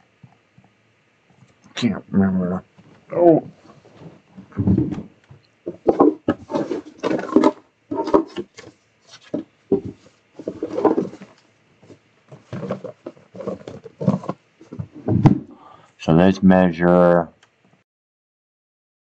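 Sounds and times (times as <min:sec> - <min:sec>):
man muttering: 0:01.7 - 0:03.5.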